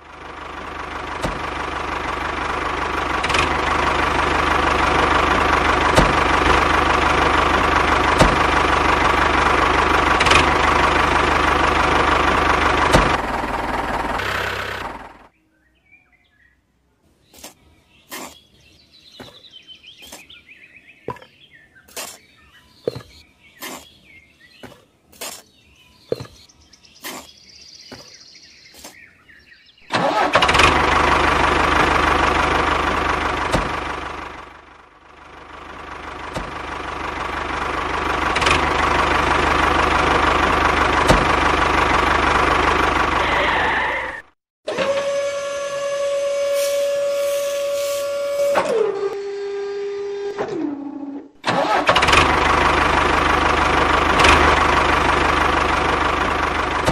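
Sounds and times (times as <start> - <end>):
tractor engine running: 0.0 - 15.3, 26.1 - 49.4, 51.4 - 56.9
spade scooping sand: 17.3 - 19.4, 20.0 - 20.4, 21.8 - 26.4, 27.0 - 28.1, 28.7 - 29.0, 46.5 - 48.6.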